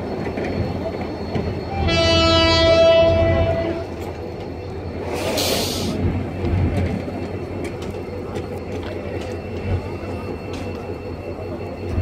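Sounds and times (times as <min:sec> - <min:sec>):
train rumbling on track: 0:00.0 - 0:12.0
train wheel clicks: 0:06.3 - 0:11.0.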